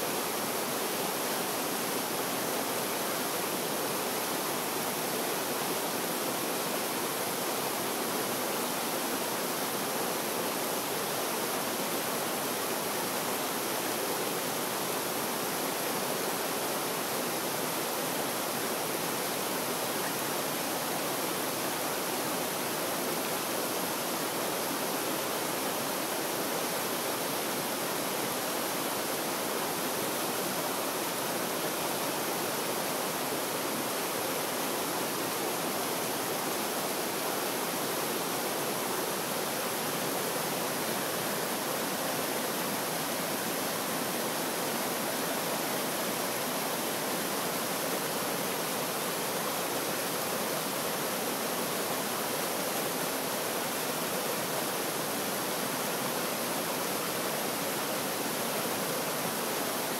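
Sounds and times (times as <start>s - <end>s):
stream rushing over boulders: 0.0s - 59.9s.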